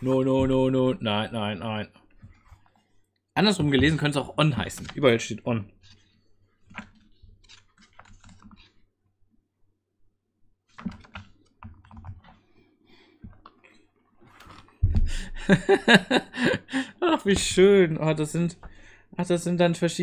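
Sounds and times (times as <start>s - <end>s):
book pages rustling: 2.1s - 9.0s, 10.6s - 15.1s
book thump: 14.8s - 15.1s.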